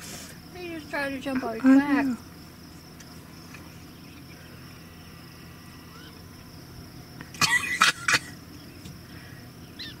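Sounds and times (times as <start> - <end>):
insect trilling: 0.0 - 10.0
faint chirps: 3.2 - 7.4, 8.3 - 10.0.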